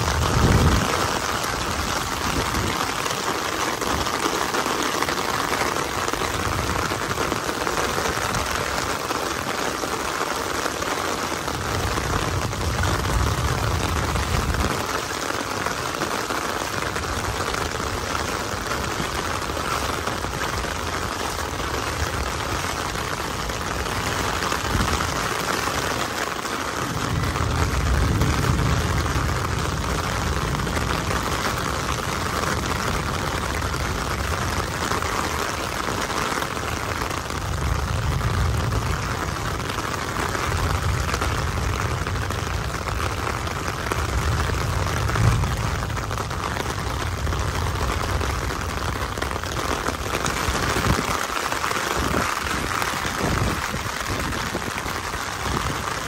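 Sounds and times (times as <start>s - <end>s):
heavy rain on wet streets: 0.0s - 56.0s
low rumble: 40.5s - 48.8s.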